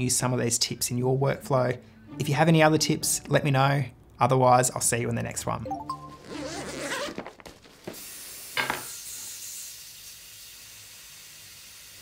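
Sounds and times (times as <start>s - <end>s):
fabric bag rustling: 6.2s - 7.9s.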